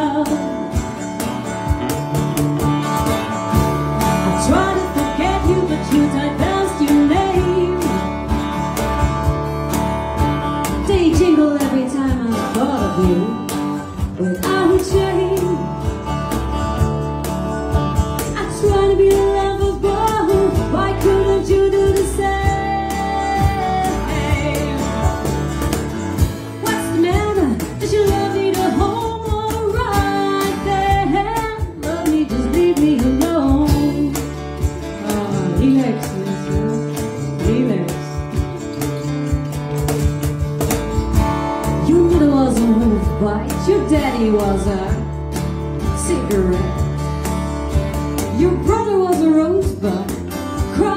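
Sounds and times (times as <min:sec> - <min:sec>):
woman singing: 0:00.0 - 0:01.0, 0:03.9 - 0:08.5, 0:10.6 - 0:16.2, 0:18.2 - 0:38.5, 0:41.5 - 0:45.2, 0:45.8 - 0:47.0, 0:48.2 - 0:50.9
drums: 0:00.0 - 0:50.9
electric bass: 0:00.0 - 0:50.9
plucked mandolin: 0:00.0 - 0:50.9.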